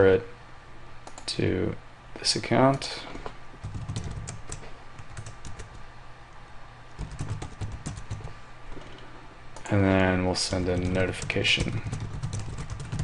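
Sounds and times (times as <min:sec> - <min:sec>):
typing on a keyboard: 0:03.6 - 0:05.8, 0:07.0 - 0:08.3, 0:10.7 - 0:13.0.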